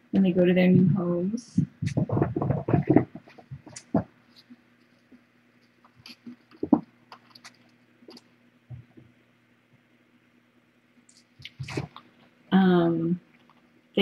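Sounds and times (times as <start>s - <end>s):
faint steady low hum: 0.0s - 14.0s
kittens moving and climbing: 0.8s - 9.1s, 11.1s - 12.2s.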